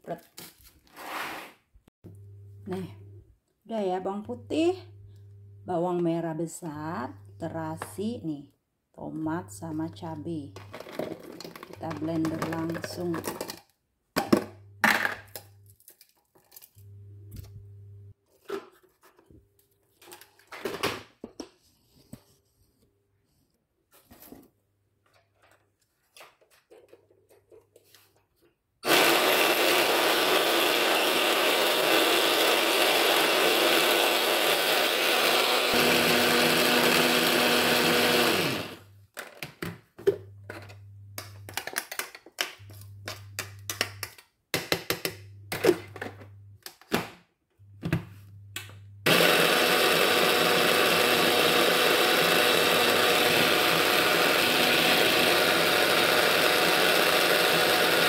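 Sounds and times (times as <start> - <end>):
electric mini chopper running: 28.9 - 38.8, 49.1 - 58.0.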